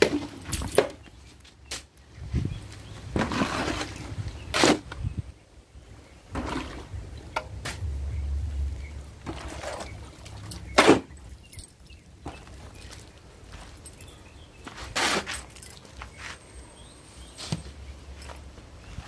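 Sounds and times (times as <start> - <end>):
shovel scraping sand: 3.0 - 5.1, 10.7 - 11.2, 14.6 - 16.4.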